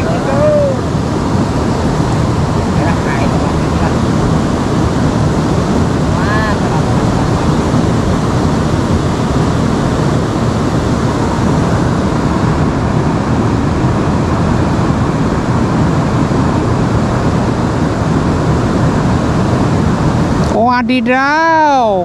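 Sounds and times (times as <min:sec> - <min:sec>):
river water rushing: 0:00.0 - 0:14.9.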